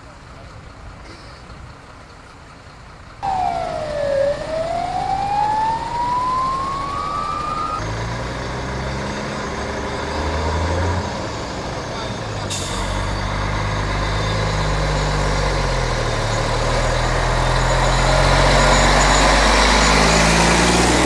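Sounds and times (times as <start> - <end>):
ambulance siren: 3.2 - 7.8
truck engine humming: 3.2 - 7.8.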